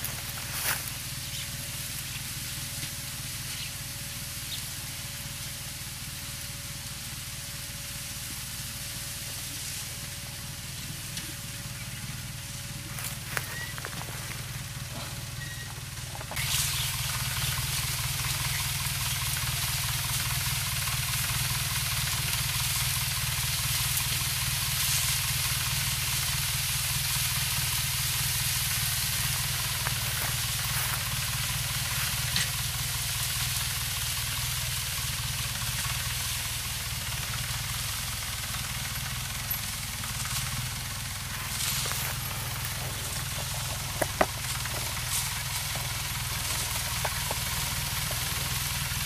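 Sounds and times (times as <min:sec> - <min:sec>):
hiss: 0:00.0 - 0:49.0
tractor engine running: 0:00.0 - 0:49.0.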